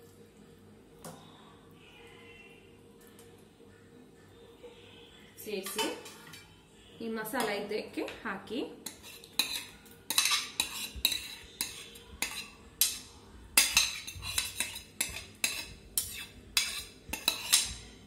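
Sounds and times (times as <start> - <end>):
metal spoon clinking on ceramic: 8.8 - 13.0, 13.6 - 17.7.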